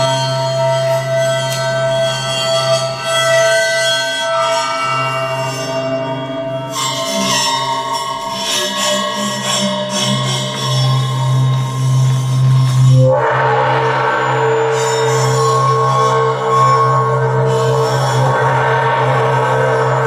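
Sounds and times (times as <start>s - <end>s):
deep hum: 13.0s - 20.0s.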